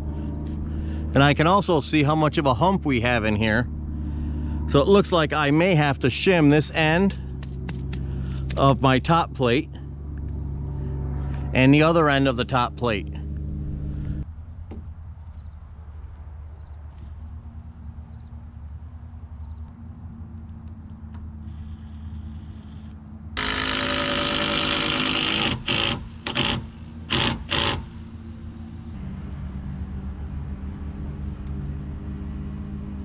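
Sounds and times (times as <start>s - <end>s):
low engine hum: 0.0s - 33.0s
power drill running: 21.5s - 28.3s.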